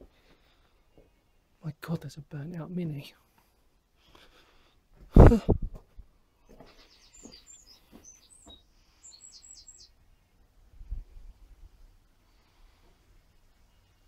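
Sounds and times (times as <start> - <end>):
small bird chirping: 6.4 - 10.5.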